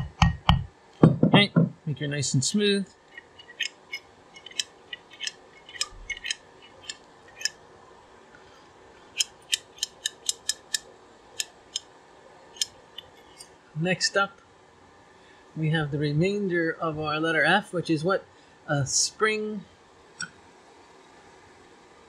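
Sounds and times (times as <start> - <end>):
light metallic clicks: 9.2 - 10.8.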